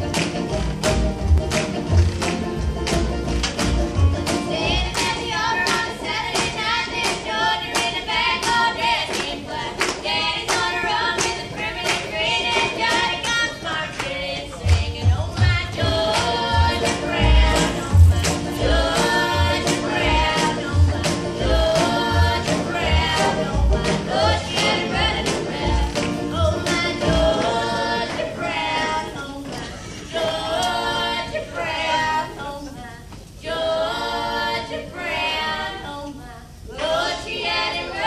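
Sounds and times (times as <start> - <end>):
acoustic guitars: 0.0 - 8.2, 14.5 - 30.9
banjo: 0.0 - 9.9, 14.4 - 31.3
voices singing in harmony: 4.2 - 38.0.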